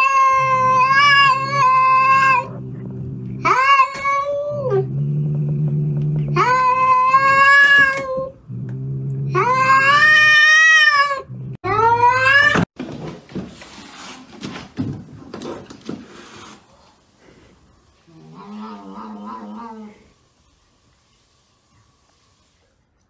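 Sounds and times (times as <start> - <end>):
cat yowling: 0.0 - 2.5
cat growling: 0.0 - 11.6, 18.1 - 20.1.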